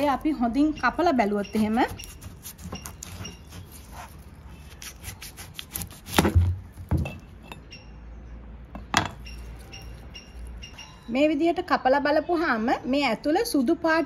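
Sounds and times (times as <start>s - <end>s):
knife cutting through yam: 0.0s - 6.5s.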